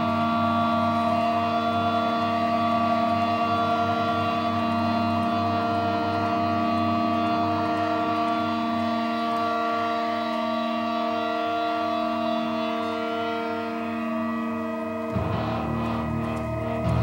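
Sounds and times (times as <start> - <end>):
electric guitar drone: 0.0 - 17.0
low throbbing pulse: 13.0 - 17.0.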